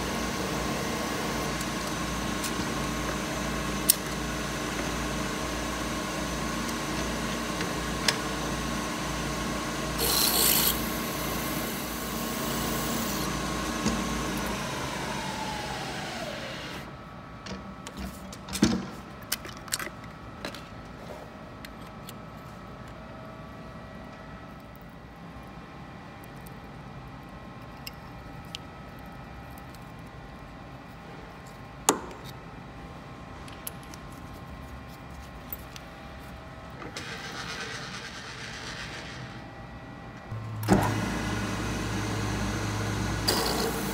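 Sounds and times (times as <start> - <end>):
milling machine spindle running: 0.0 - 16.9, 40.6 - 43.9
drill rasping into metal: 10.0 - 11.0.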